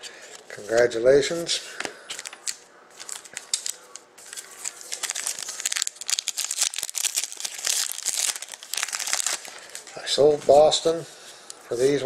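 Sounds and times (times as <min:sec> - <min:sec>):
foil wrapper crinkling: 0:02.1 - 0:10.0.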